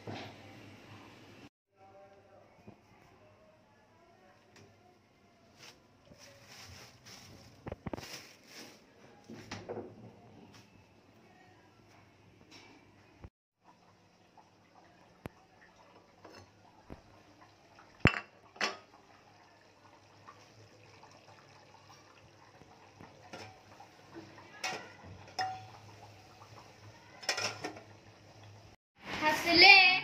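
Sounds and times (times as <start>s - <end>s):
steel utensils clinking: 24.6s - 25.8s, 27.2s - 27.9s.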